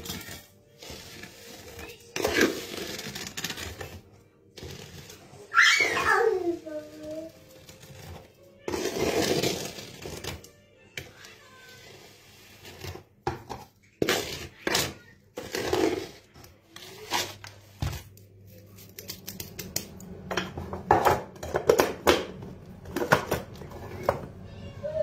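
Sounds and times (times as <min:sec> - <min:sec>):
spoon scraping wooden bowl: 0:00.0 - 0:04.0, 0:04.6 - 0:05.5, 0:06.2 - 0:17.6.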